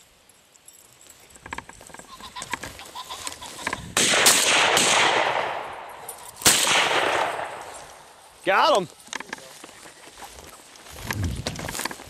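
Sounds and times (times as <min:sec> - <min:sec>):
shotgun shots: 0:04.0 - 0:07.7
echoing cracks: 0:04.0 - 0:08.1.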